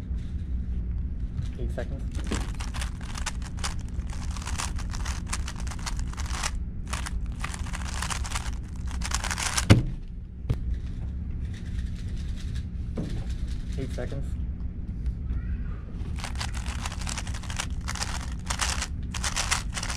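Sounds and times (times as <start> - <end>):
puzzle cube plastic clicks: 2.1 - 9.8, 16.2 - 19.9.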